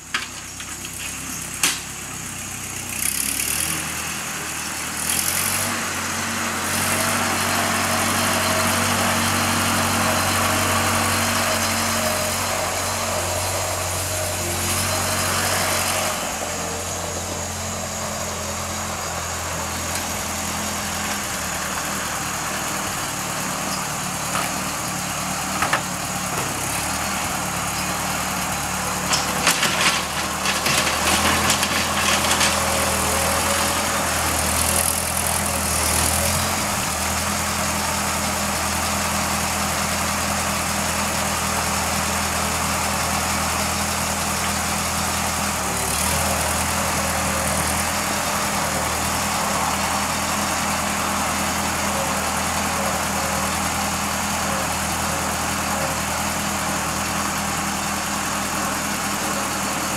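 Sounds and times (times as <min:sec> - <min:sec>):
tractor engine running: 0:00.0 - 0:59.9
blade clanking on dirt: 0:28.8 - 0:35.1.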